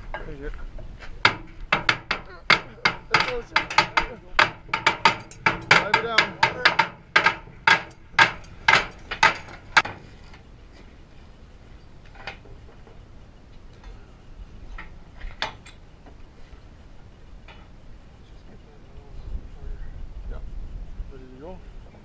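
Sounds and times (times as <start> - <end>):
faint metallic knocks: 0.0 - 10.5
sledgehammers striking iron: 1.2 - 10.1.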